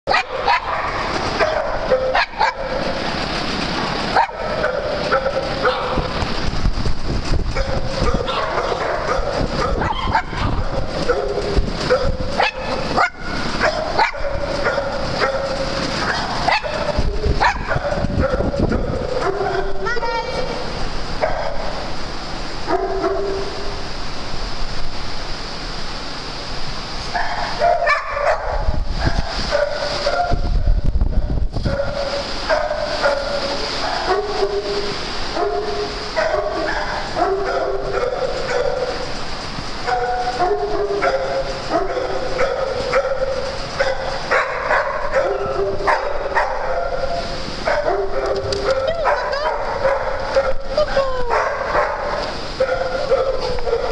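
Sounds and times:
dogs barking: 0.1s - 6.5s, 7.5s - 22.0s, 22.6s - 23.8s, 27.1s - 30.8s, 31.6s - 53.9s
steady background noise: 0.1s - 53.9s.

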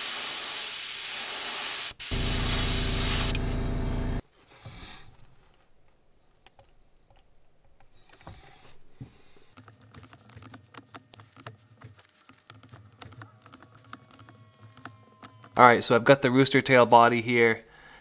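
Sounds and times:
short hiss: 0.0s - 3.6s.

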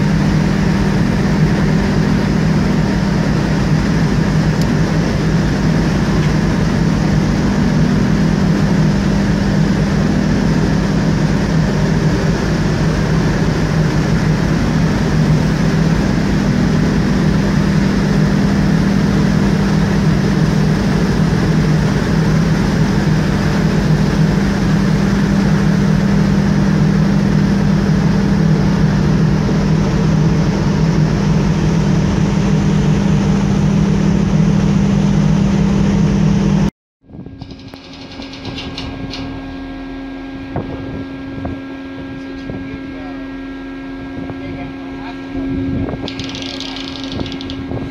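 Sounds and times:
low drone of ship machinery: 0.0s - 47.9s
constant rushing hiss: 46.1s - 47.7s.

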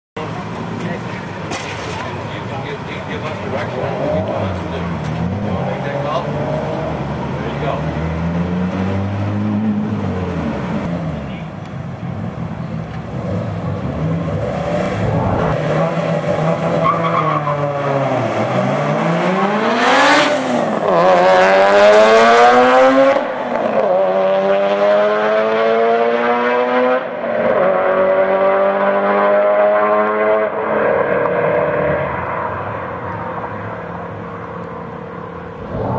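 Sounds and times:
car engines revving and accelerating: 0.2s - 35.9s
tire screech: 14.0s - 18.7s.

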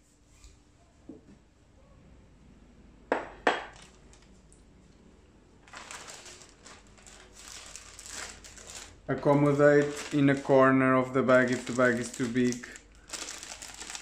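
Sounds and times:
plastic bag crinkling: 3.6s - 4.5s, 5.6s - 14.0s.

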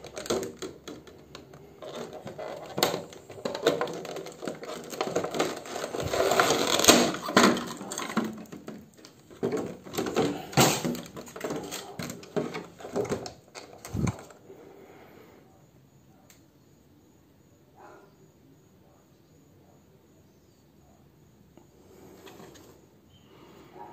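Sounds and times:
plastic box clicking and crackling: 0.0s - 14.4s.

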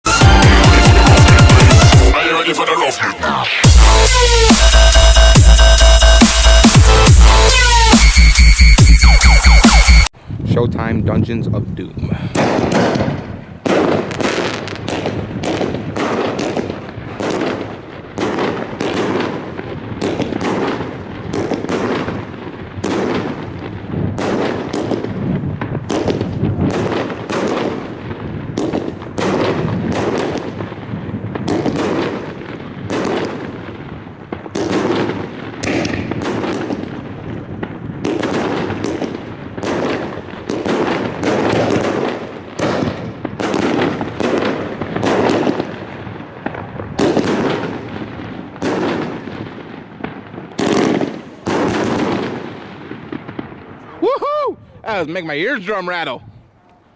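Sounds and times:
firework cake firing shots: 12.2s - 53.6s.

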